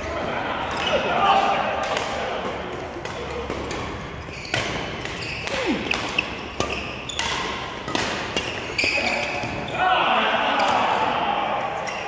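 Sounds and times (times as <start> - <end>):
racket hitting shuttlecock: 0.7 - 9.6
shoe squeaks: 4.1 - 9.8.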